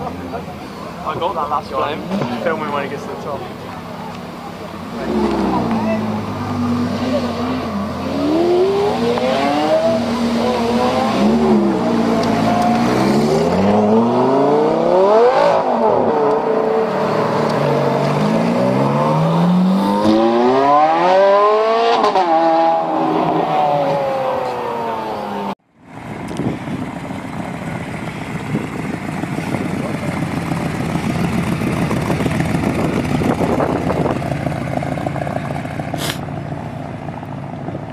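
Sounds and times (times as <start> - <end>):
sports car engine revving: 4.8 - 25.5.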